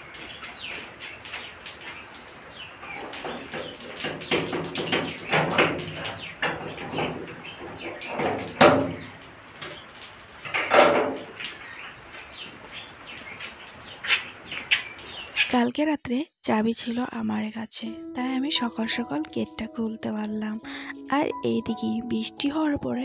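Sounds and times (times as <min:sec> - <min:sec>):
birds chirping: 0:00.0 - 0:15.6
metal gate latch clanking: 0:04.4 - 0:09.1, 0:10.5 - 0:11.2.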